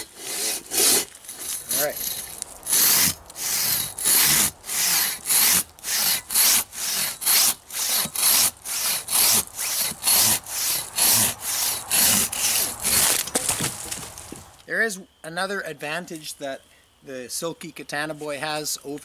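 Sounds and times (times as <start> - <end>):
saw cutting through log: 0.0 - 13.4.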